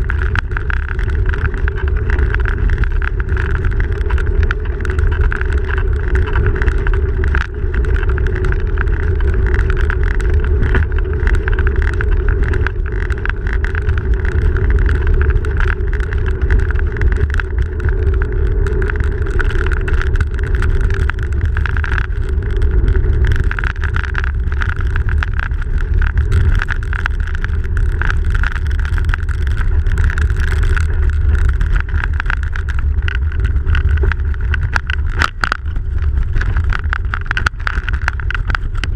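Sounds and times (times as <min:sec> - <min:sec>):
tyres rumbling on packed snow: 0:00.0 - 0:38.9
wind on microphone: 0:00.0 - 0:38.9
bicycle knocks and rattles: 0:23.5 - 0:38.9.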